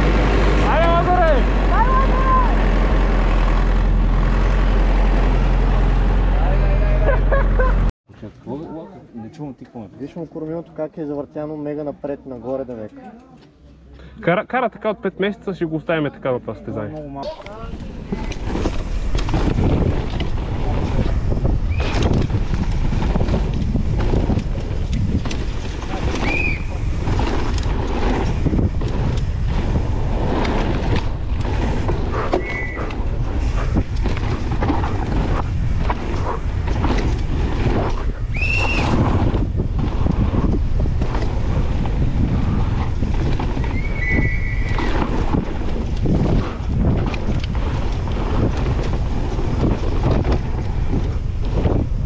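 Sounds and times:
tyres rumbling on dirt: 0:00.0 - 0:07.9, 0:17.4 - 0:52.0
bike rattling and knocking: 0:17.3 - 0:52.0
wind buffeting microphone: 0:17.4 - 0:52.0.

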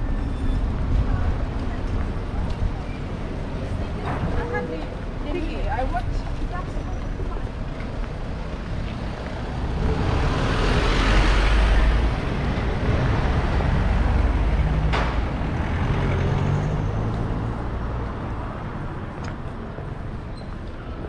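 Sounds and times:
vehicle passing: 0:08.5 - 0:19.0.

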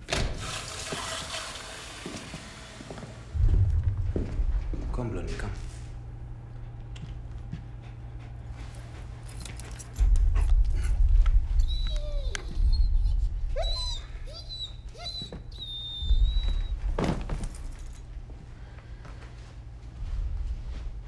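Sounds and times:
deep low drone: 0:03.3 - 0:14.7, 0:15.7 - 0:21.0
dog whimpering and whining: 0:11.5 - 0:17.1.

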